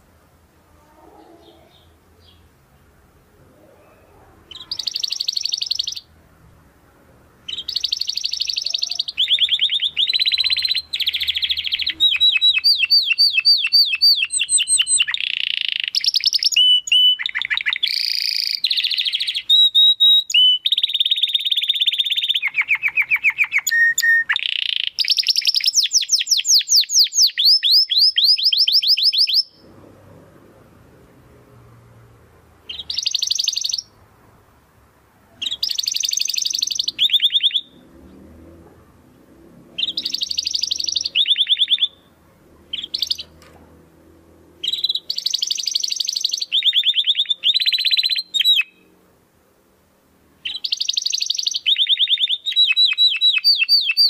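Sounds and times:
canary trilling: 3.6s - 6.1s, 7.4s - 29.6s, 32.7s - 34.0s, 35.4s - 38.8s, 39.6s - 43.5s, 44.6s - 48.9s, 50.4s - 54.0s.

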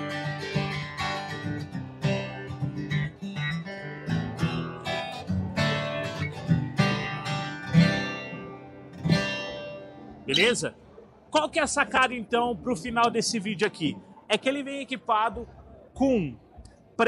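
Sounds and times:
acoustic guitar strummed and picked: 0.0s - 10.6s.

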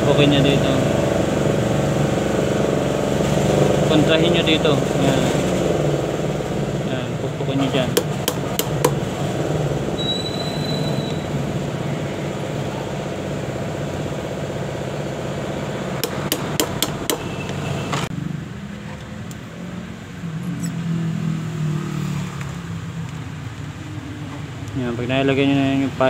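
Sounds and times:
hammer tapping metal: 7.9s - 9.0s, 16.0s - 17.3s.

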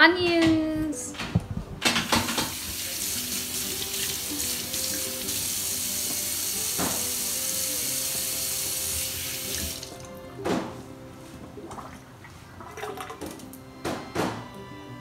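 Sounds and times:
background music: 0.0s - 15.0s
kitchen tap running: 2.0s - 10.2s, 12.6s - 13.6s.

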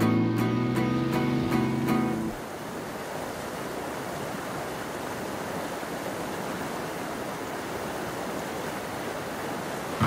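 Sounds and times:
river water running: 0.0s - 10.0s.

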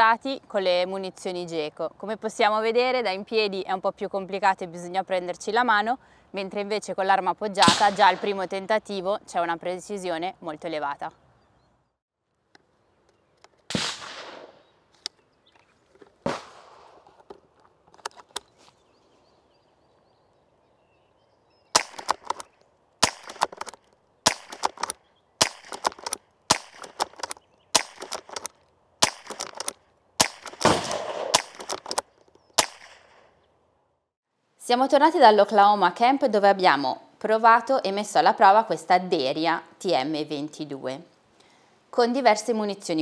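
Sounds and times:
rifle shots cracking: 7.6s - 8.4s, 13.7s - 14.7s, 16.2s - 17.2s, 21.8s - 33.3s.

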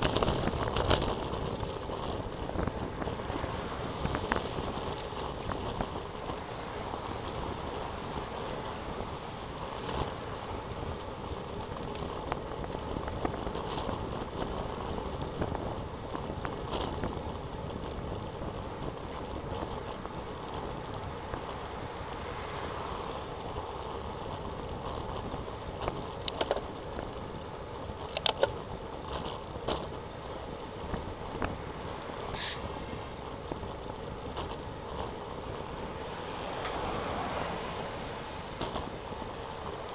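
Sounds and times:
rolling road noise: 0.0s - 39.9s
wind: 0.0s - 39.9s
sharp clicks and knocks: 24.7s - 26.8s, 28.0s - 29.9s.

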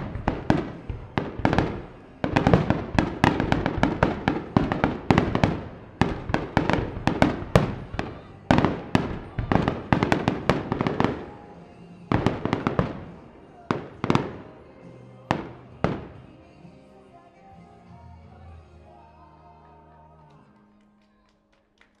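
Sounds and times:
firework shells bursting: 0.0s - 16.3s.

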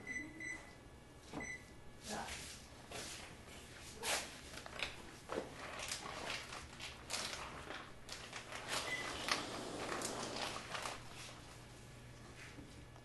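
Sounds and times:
plastic bag crinkling: 5.5s - 11.6s.

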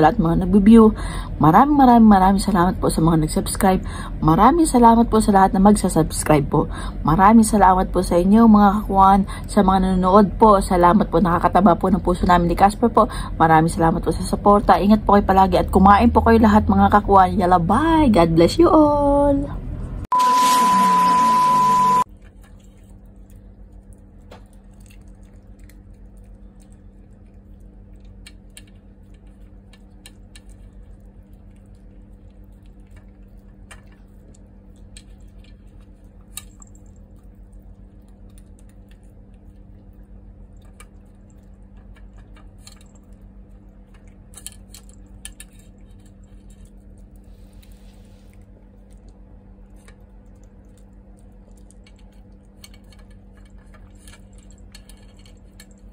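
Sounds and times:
steady low hum: 0.0s - 55.9s
dog chewing and licking: 22.4s - 55.9s.

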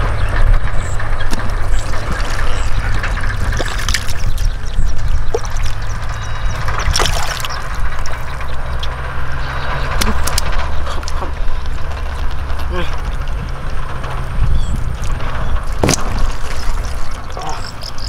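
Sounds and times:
low rumble: 0.0s - 18.0s
hands splashing in muddy water: 6.8s - 7.6s.

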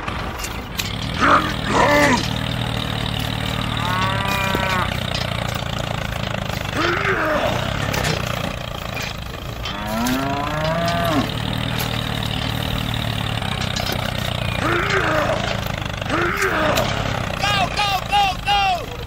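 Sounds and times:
tractor engine droning: 0.0s - 19.0s
cow mooing: 0.9s - 17.7s.

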